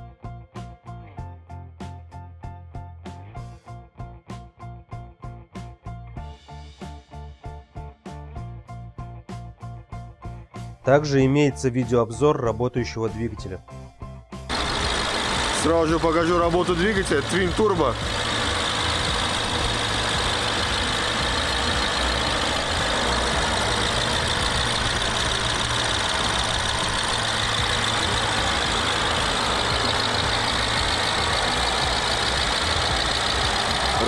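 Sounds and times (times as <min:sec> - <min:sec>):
car engine idling: 0:14.5 - 0:34.0.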